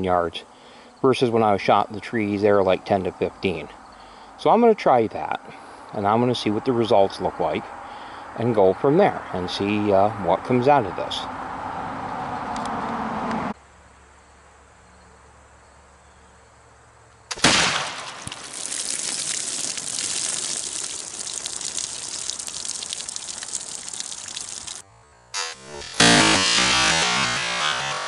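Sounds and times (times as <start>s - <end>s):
rifle shot: 17.3s - 18.2s
water gushing onto plastic table: 18.1s - 24.8s.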